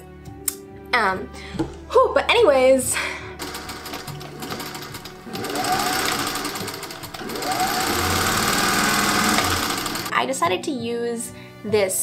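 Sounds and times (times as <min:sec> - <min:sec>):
sewing machine stitching: 0:03.4 - 0:10.1.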